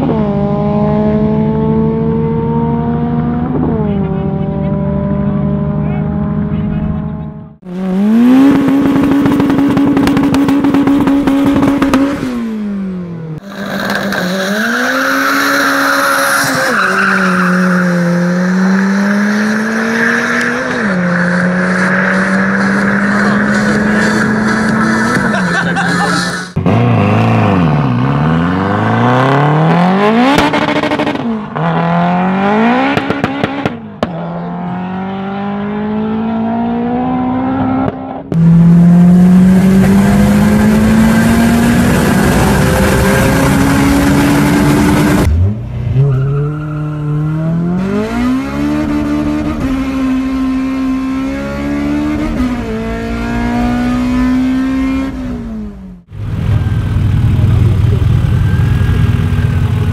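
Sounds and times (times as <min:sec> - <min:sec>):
car engine at full throttle: 0:00.0 - 0:59.9
turbocharged engine at low revs: 0:56.0 - 0:59.9.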